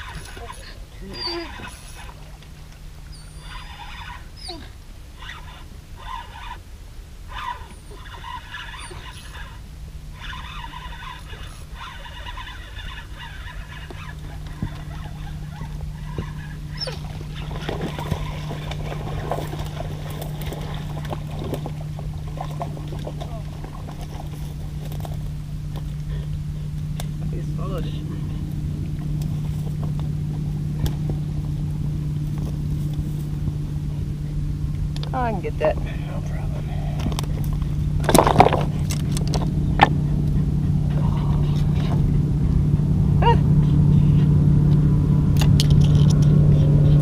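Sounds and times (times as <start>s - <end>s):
high buzzy animal calls: 0.0s - 2.4s, 3.1s - 6.6s, 7.3s - 24.3s
steady low drone: 0.0s - 47.0s
wind rumbling on microphone: 0.0s - 47.0s.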